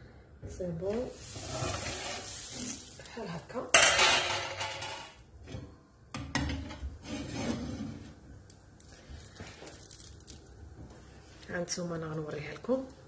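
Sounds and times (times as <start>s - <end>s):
frying pan scraping on metal grate: 1.2s - 2.9s, 6.3s - 8.3s.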